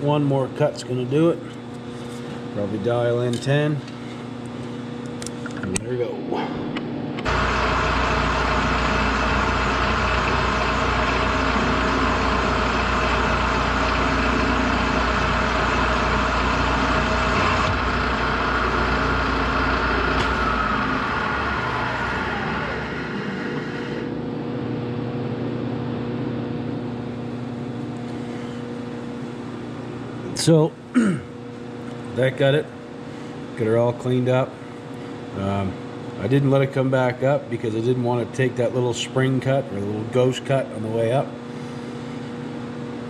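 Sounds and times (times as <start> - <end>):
milling machine running: 7.2 - 24.1
machine whine falling: 7.2 - 26.4.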